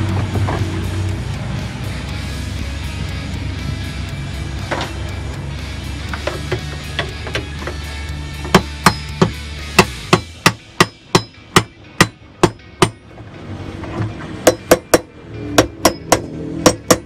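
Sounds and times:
metal tool knocking on metal hub: 8.4s - 13.0s, 14.4s - 17.0s.

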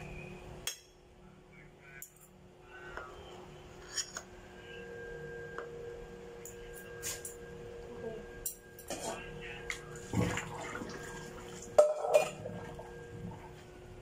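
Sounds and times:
faint steady tone: 4.4s - 10.0s.

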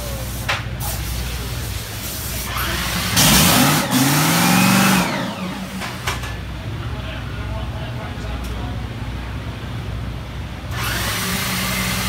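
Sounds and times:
dragster engine roaring: 0.0s - 12.0s.

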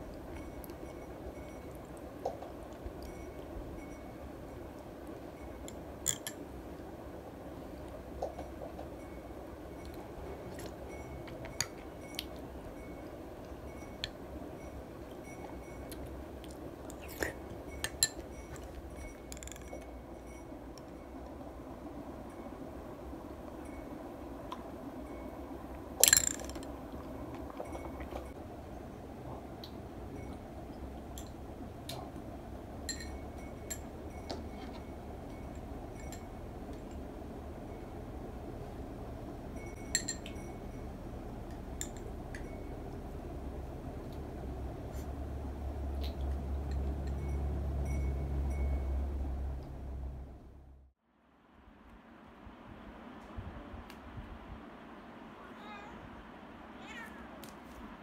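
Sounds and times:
low background noise: 0.0s - 58.0s
low room hum: 0.0s - 58.0s
metal spoon clinking glass bowl: 5.7s - 6.4s, 16.9s - 20.4s, 26.0s - 26.7s, 32.9s - 34.8s, 39.8s - 40.8s, 41.8s - 42.7s.

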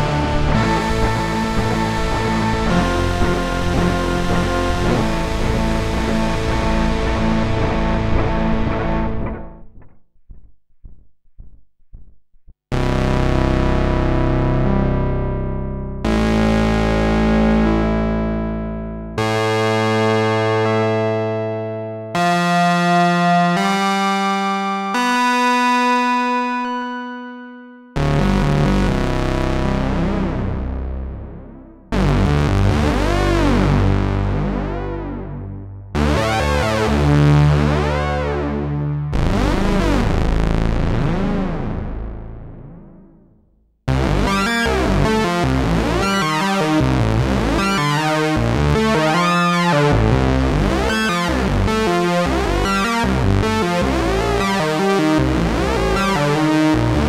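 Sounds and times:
synthesizer held chords: 0.0s - 10.0s, 12.7s - 57.0s
sequenced synthesizer pattern: 0.0s - 12.1s.

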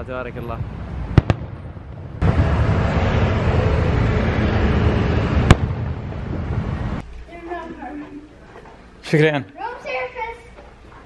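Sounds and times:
fireworks bangs: 0.0s - 7.0s
rumble of firework bursts: 0.6s - 7.0s.

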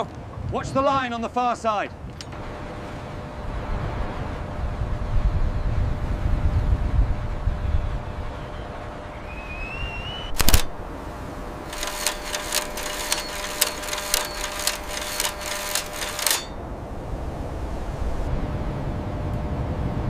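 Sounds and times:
rapid mechanical clicks: 10.4s - 10.8s, 11.7s - 16.6s
steady hum: 10.4s - 20.0s.

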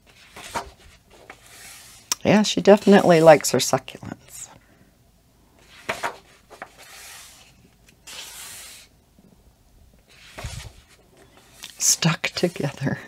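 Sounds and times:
paper swishing: 0.0s - 2.2s, 5.6s - 8.9s, 10.1s - 12.9s.

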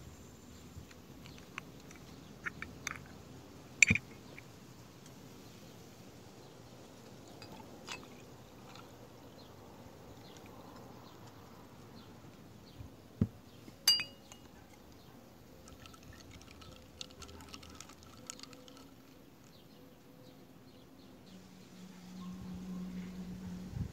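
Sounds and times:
glass clink: 13.9s - 14.5s
juice pouring over ice: 15.6s - 19.2s
ice clicks and crackles: 15.6s - 19.6s.

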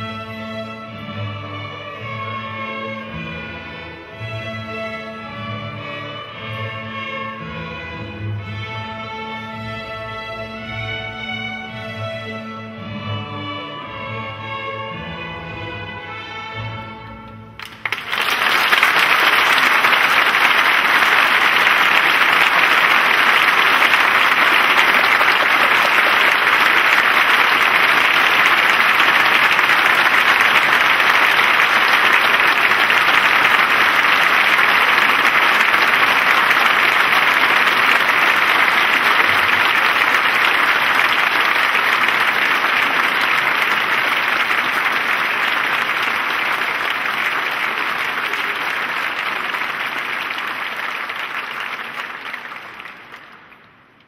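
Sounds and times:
large audience applauding: 17.6s - 53.8s.

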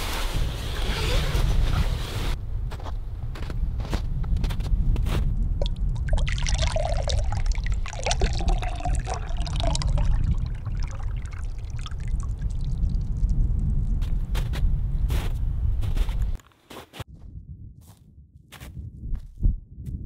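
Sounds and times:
low rumble: 4.9s - 15.9s
juice pouring into a glass: 5.6s - 13.5s.

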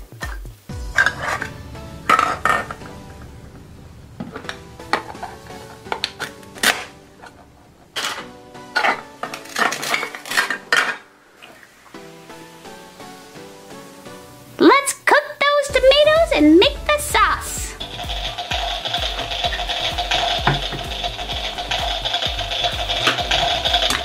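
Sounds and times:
plastic pieces clattering into bowl: 8.0s - 11.1s, 17.8s - 24.0s.

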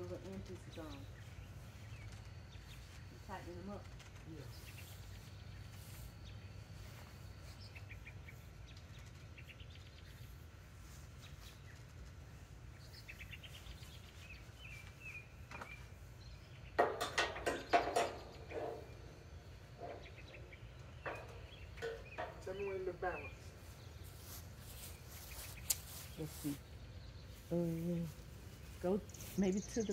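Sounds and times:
birds chirping: 0.0s - 29.9s
low outdoor hum: 0.0s - 29.9s
loud knocks and clatter: 16.8s - 18.9s.

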